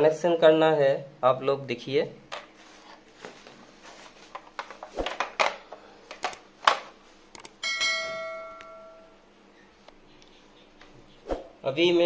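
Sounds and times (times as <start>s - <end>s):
knocks and rustles of handling: 2.3s - 7.0s
notification bell ding: 7.6s - 9.2s.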